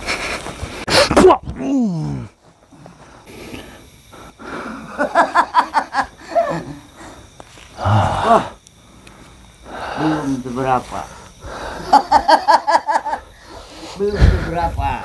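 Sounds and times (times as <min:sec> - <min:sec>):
man crying out: 0:01.0 - 0:02.4, 0:06.2 - 0:06.9, 0:07.8 - 0:08.6
man grunting: 0:01.2 - 0:02.3, 0:07.8 - 0:08.6.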